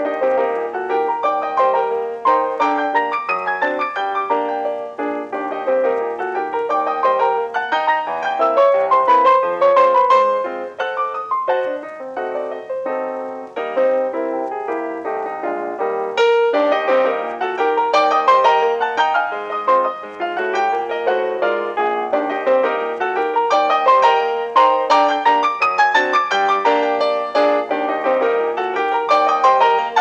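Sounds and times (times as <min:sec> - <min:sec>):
fast piano music: 0:00.0 - 0:30.0.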